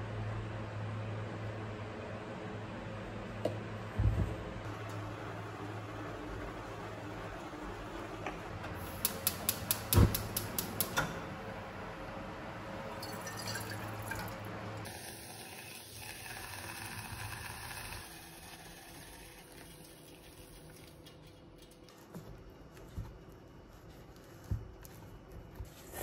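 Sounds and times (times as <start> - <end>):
water trickling into saucepan: 13.0 - 20.8.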